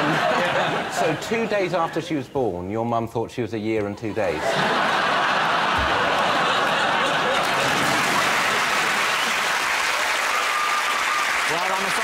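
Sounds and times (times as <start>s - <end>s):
laughter: 0.0s - 1.2s, 4.2s - 8.6s
audience clapping: 5.7s - 12.0s.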